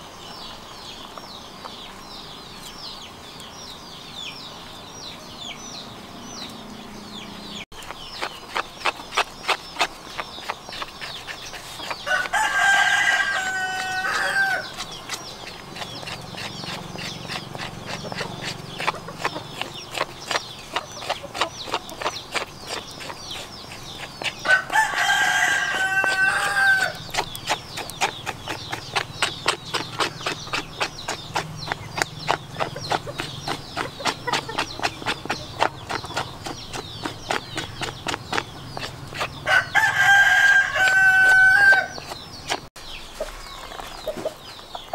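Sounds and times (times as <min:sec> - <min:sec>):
knife scraping hair off skin: 0:07.8 - 0:42.7
rooster crowing: 0:12.0 - 0:14.7, 0:24.4 - 0:27.0, 0:39.4 - 0:42.0.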